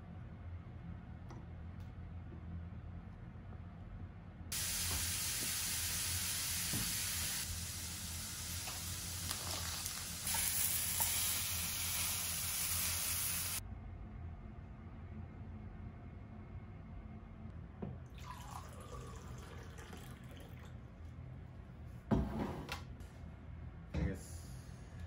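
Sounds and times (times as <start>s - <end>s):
mushrooms sizzling in frying pan: 4.5s - 13.6s.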